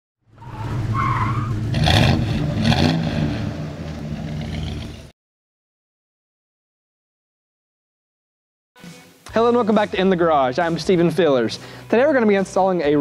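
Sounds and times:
car engine revving: 0.3 - 5.1
tyres skidding: 0.3 - 5.1.

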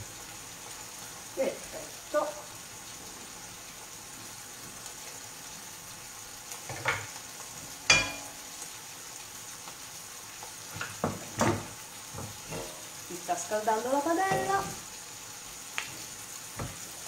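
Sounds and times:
oil sizzling in frying pan: 0.0 - 17.0
ceramic plate clinking: 7.9 - 8.3.

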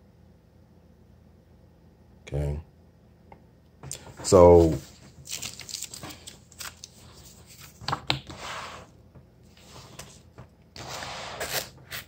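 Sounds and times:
book pages and covers rustling: 4.0 - 8.9, 9.5 - 10.5.

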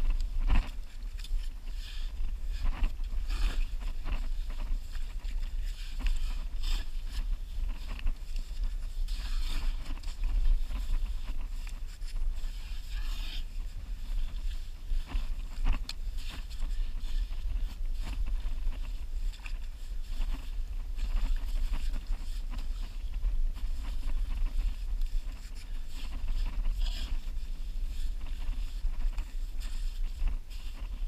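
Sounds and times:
steady low rumble: 0.0 - 31.0.

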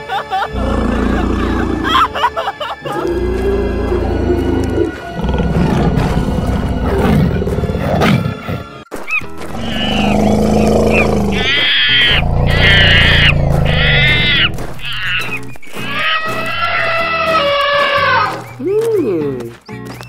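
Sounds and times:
background music: 0.0 - 20.0
animal roars: 2.9 - 8.6, 9.2 - 17.2.

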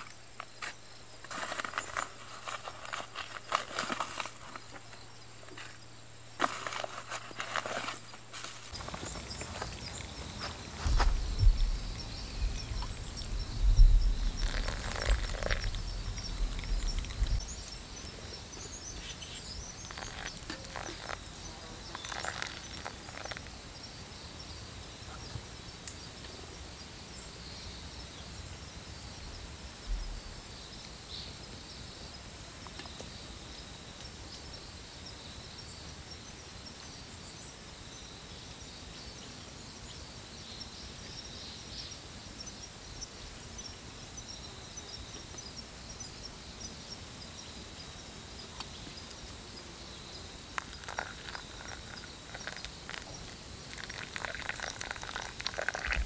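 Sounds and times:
faint insects: 0.0 - 56.0
birds chirping: 1.5 - 26.2
water trickling into coffee filter: 8.7 - 23.5, 50.6 - 56.0
low rumble: 10.8 - 17.6.

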